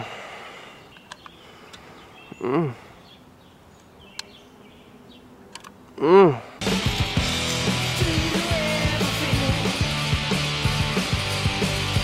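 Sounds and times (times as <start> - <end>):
faint sharp clicks: 0.9 - 1.9
closed-mouth vocal sound: 2.3 - 2.9, 6.0 - 6.6.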